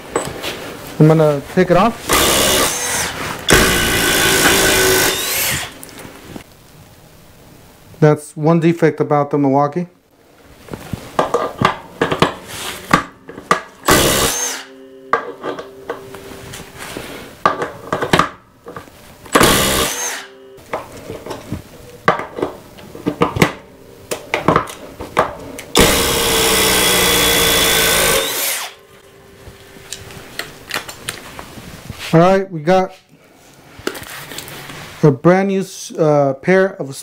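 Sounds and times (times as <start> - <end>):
impact driver driving into wood: 2.1 - 5.8, 13.8 - 14.7, 19.3 - 20.3, 25.7 - 28.8
impact driver trigger bursts: 2.1 - 5.8, 13.8 - 14.7, 19.3 - 20.3, 25.8 - 28.8
tools being handled clicks and knocks: 11.2 - 14.0, 15.1 - 16.6, 17.4 - 19.4.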